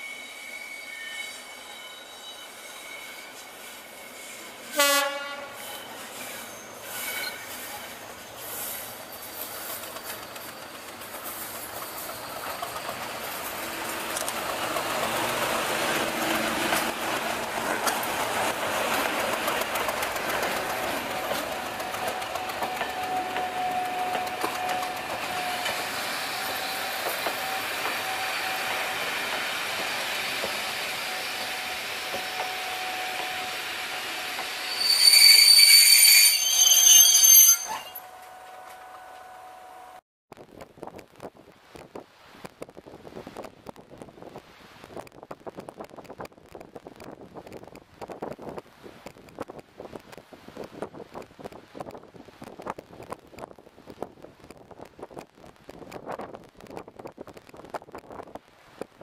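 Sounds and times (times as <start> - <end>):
wheel squeal: 0.0 - 4.6, 5.6 - 7.8, 8.5 - 13.6, 21.1 - 28.9, 34.2 - 38.1
diesel locomotive engine: 3.3 - 40.0
locomotive horn blast: 4.7 - 5.6.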